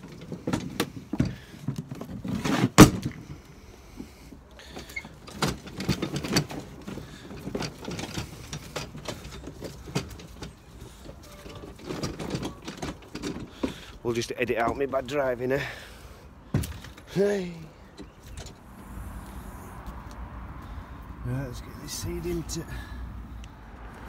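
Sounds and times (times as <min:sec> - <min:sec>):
trolley cart knocking and rattling: 0:00.0 - 0:15.8.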